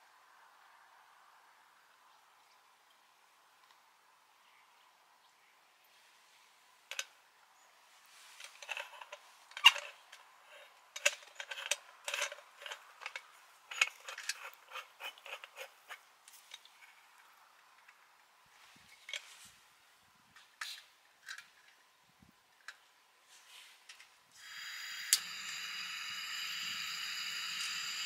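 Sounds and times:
clicks of small hard objects: 0:08.4 - 0:16.9.

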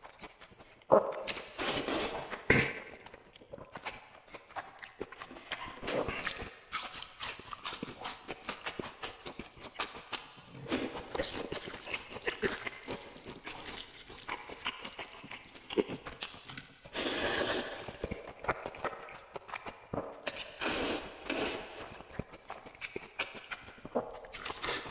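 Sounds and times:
wet chewing with mouth smacks: 0:00.0 - 0:24.9
slurping noodles: 0:00.6 - 0:06.4, 0:10.4 - 0:23.4.

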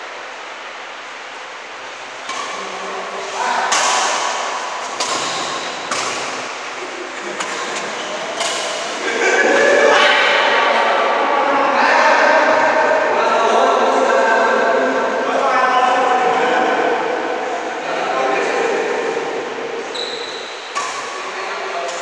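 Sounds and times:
racquets hitting shuttlecock: 0:02.2 - 0:09.2, 0:20.0 - 0:22.0.

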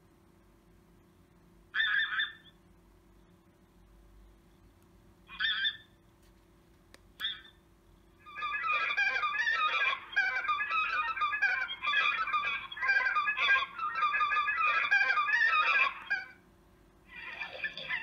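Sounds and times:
geese honking through speaker: 0:01.7 - 0:02.5, 0:05.3 - 0:05.9, 0:08.2 - 0:16.4.

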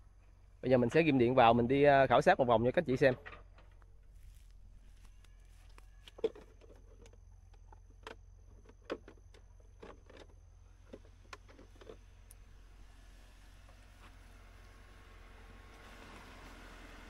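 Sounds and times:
footsteps through grass and leaves: 0:03.8 - 0:06.2.

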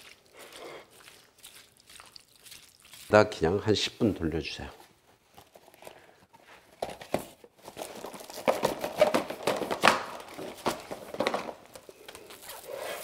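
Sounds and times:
plastic wrap crinkling: 0:07.6 - 0:13.0.

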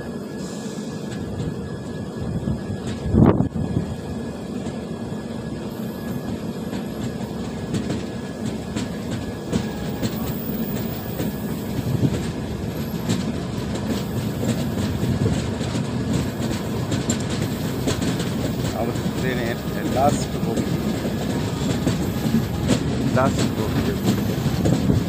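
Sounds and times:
train wheels rumbling on rail: 0:00.0 - 0:25.0
wheels clicking over rail joints: 0:06.0 - 0:25.0.

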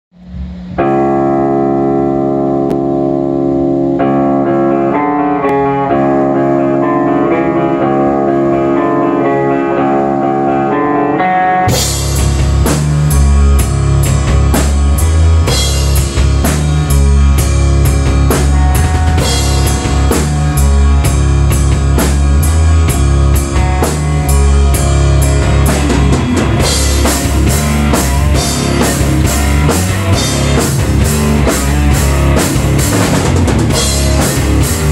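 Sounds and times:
electric guitar playing chords: 0:00.2 - 0:34.9
drum kit with cymbals: 0:11.7 - 0:34.9.

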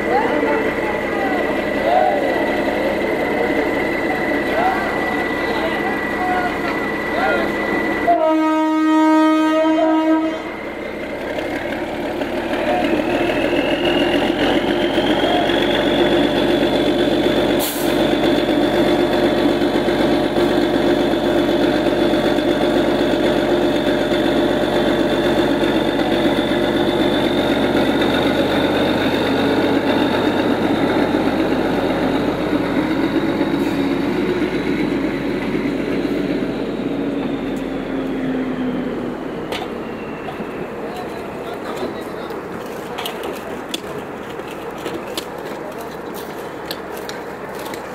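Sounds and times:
high whine climbing in pitch: 0:00.0 - 0:17.5
diesel engine running: 0:00.0 - 0:47.9
vehicle horn: 0:08.1 - 0:10.6.

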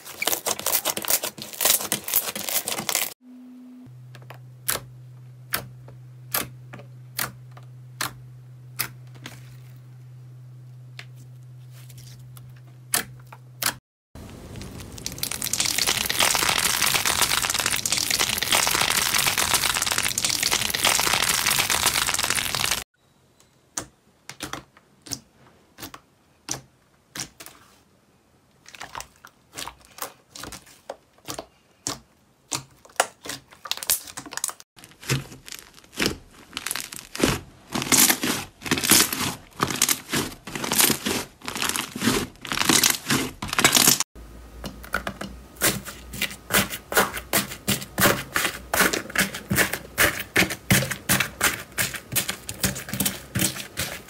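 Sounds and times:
slime clicking and crackling: 0:00.1 - 0:03.1, 0:14.5 - 0:22.8, 0:31.2 - 0:44.0.

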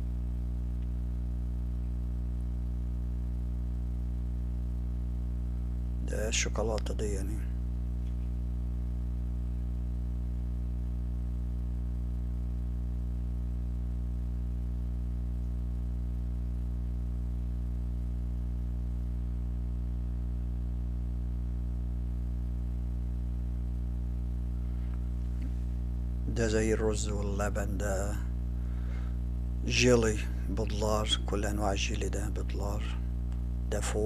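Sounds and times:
low electrical hum: 0:00.0 - 0:34.0.

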